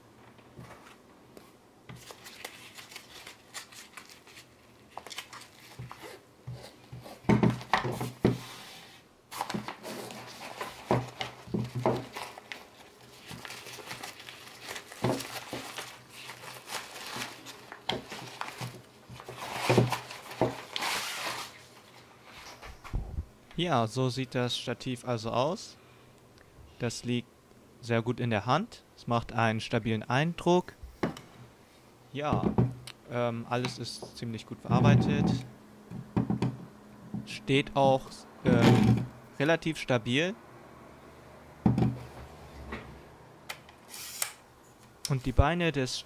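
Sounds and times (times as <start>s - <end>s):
nylon pouch rustling and crinkling: 1.9s - 6.8s, 9.3s - 22.1s.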